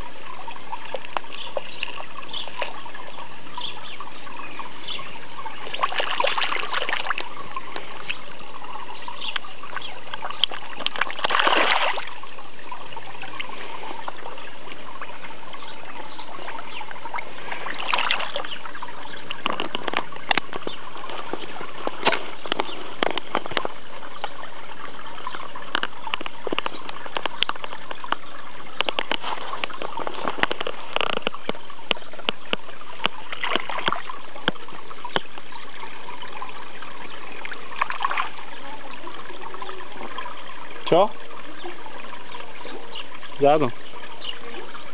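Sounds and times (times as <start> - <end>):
pond water trickling: 0.0 - 44.9
fish splashing at surface: 5.6 - 7.8, 10.2 - 12.3, 17.4 - 24.4, 28.8 - 35.4.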